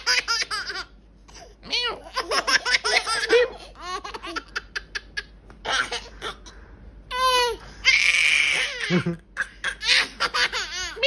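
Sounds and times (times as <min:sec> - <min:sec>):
babies giggling: 0:00.0 - 0:06.5, 0:07.1 - 0:11.0.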